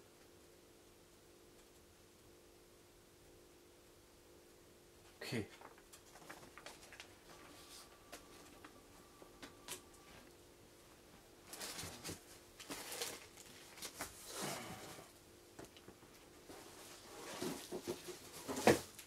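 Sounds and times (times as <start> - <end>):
faint steady hum: 0.0 - 19.0
cardboard and plastic rustling: 5.6 - 8.8, 11.4 - 15.0, 15.6 - 19.0.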